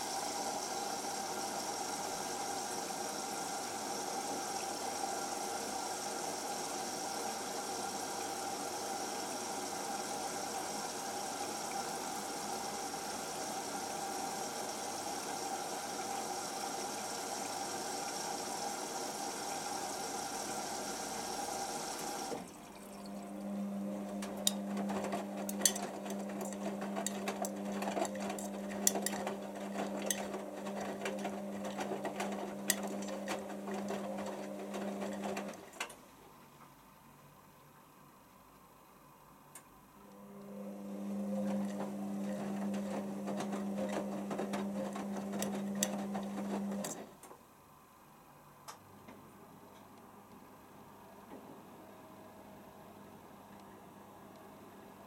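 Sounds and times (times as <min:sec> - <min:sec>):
water rushing through inlet valve: 0:00.0 - 0:35.7
washing machine drum motor hum: 0:00.0 - 0:36.1, 0:40.2 - 0:47.2
wet laundry tumbling: 0:24.1 - 0:35.8.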